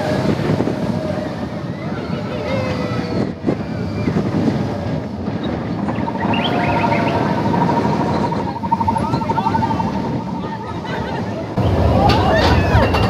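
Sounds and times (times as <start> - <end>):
roller coaster rumbling on track: 0.0 - 13.0
wind buffeting microphone: 0.0 - 13.0
high-pitched whine: 5.5 - 10.9.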